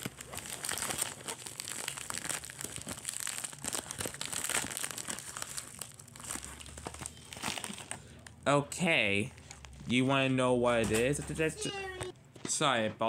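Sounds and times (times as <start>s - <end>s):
packaging crinkling: 0.0s - 8.4s, 9.1s - 10.3s.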